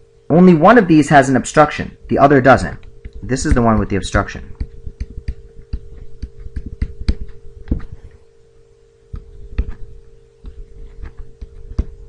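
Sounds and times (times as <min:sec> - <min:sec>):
steady hum: 0:00.0 - 0:12.0
stylus tapping on tablet: 0:02.8 - 0:08.0, 0:09.1 - 0:12.0.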